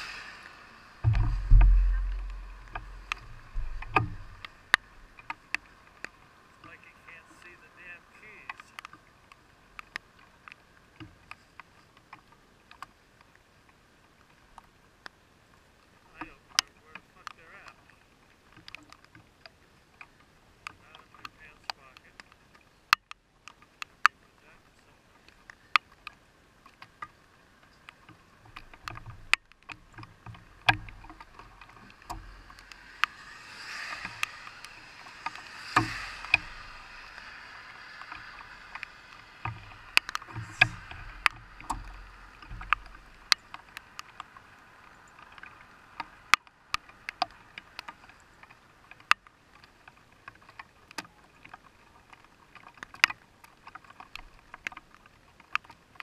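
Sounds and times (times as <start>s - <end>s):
heavy hissing rain: 0.0s - 11.6s, 29.9s - 48.7s
low rumble: 0.5s - 5.2s, 30.9s - 43.4s
raindrops tapping on car: 1.0s - 9.1s, 27.8s - 44.4s.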